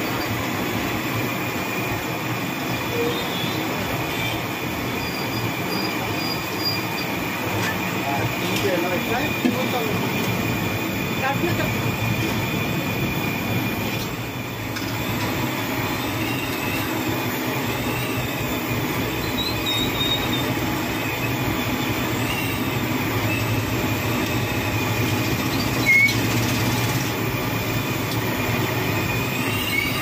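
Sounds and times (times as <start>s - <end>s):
food deep-frying in hot oil: 13.9s - 30.0s.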